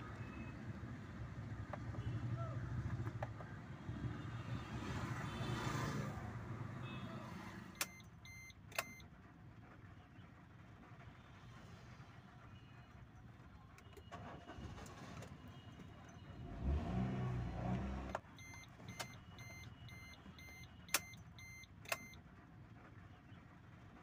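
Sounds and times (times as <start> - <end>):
electronic beeps: 18.4 - 22.2.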